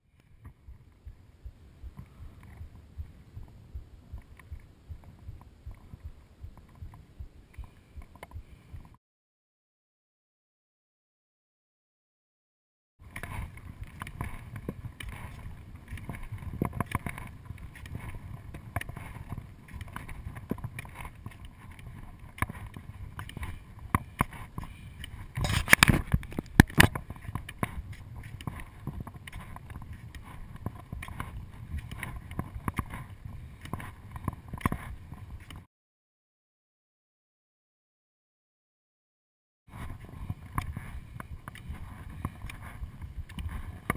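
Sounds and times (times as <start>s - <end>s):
wind noise: 0.1s - 9.0s, 13.0s - 35.7s, 39.7s - 43.9s
ski poles planted in snow: 13.0s - 35.7s, 39.7s - 43.9s
skis sliding over snow: 13.2s - 35.5s, 39.7s - 43.9s.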